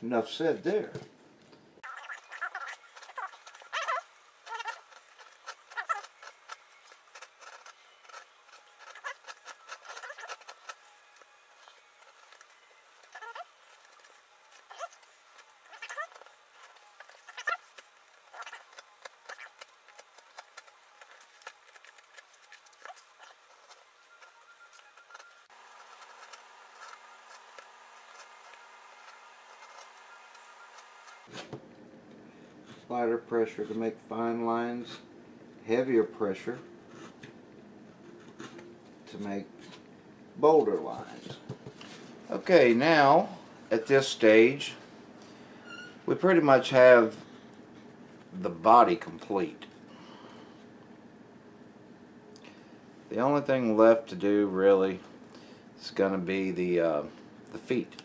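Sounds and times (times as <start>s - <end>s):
carving tool scraping foam: 2.3s - 31.3s
steady hum: 2.8s - 58.0s.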